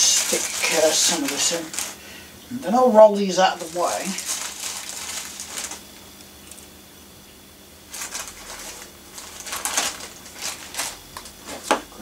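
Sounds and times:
small granules rattling: 0:00.0 - 0:02.0, 0:03.3 - 0:06.7, 0:07.9 - 0:11.3
plastic bag crinkling: 0:00.0 - 0:02.1, 0:03.2 - 0:06.7, 0:07.9 - 0:11.8.

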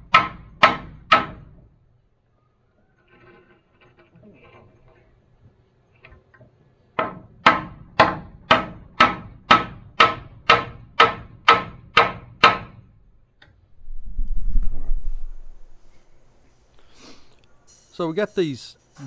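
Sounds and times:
hammer nailing wooden board: 0:00.0 - 0:01.6, 0:07.0 - 0:12.9.

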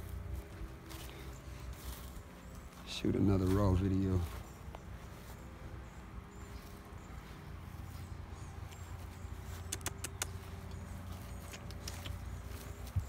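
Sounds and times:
sharp clicks: 0:09.6 - 0:10.8.

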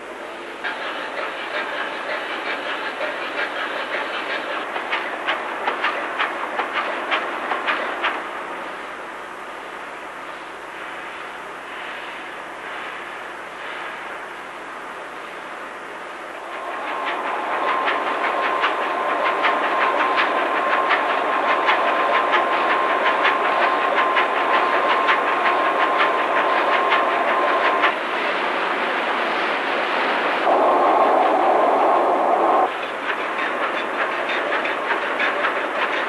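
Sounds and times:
loud hiss-like noise: 0:00.0 - 0:34.6
steady mechanical whine: 0:08.4 - 0:33.5.

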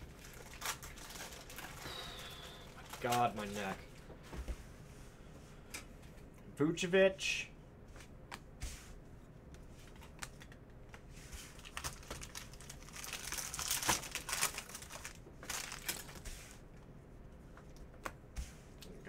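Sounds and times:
foil pack crinkling: 0:00.0 - 0:03.8, 0:11.5 - 0:16.2.

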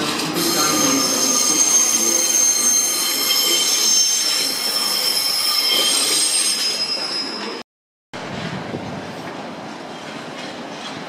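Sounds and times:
train rolling noise: 0:00.0 - 0:07.6, 0:08.2 - 0:11.0
train wheels squealing: 0:00.4 - 0:07.6.

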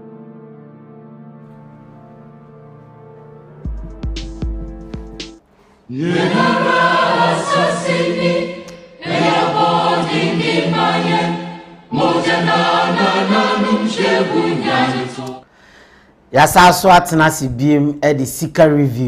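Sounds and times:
choir singing: 0:05.9 - 0:15.5.

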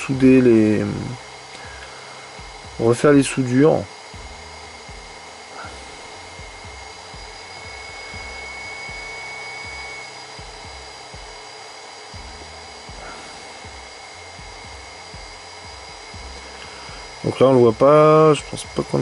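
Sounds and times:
soldering station whirring: 0:00.0 - 0:19.0.

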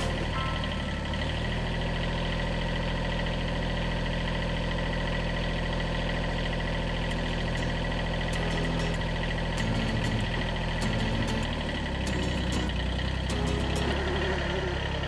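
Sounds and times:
tractor diesel engine idling: 0:00.0 - 0:15.0.

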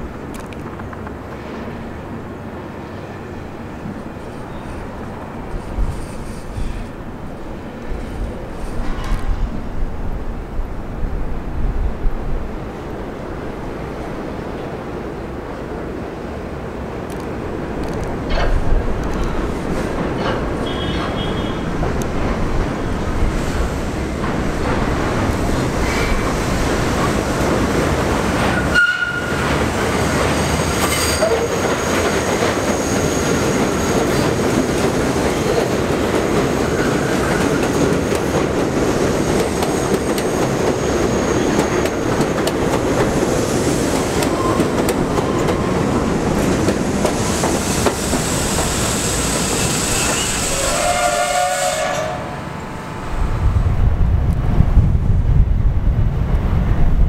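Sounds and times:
train wheels rumbling on rail: 0:00.0 - 0:57.0
short pitched train tone: 0:20.6 - 0:21.7, 0:28.6 - 0:29.5, 0:49.5 - 0:52.8.

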